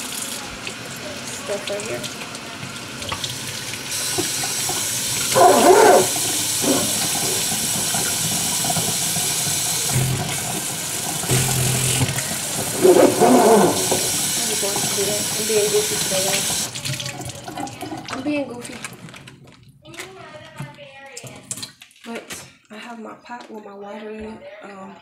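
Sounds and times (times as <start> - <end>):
faucet sprayer running water: 0.0 - 17.0
woman speaking: 14.4 - 16.5, 22.1 - 25.0.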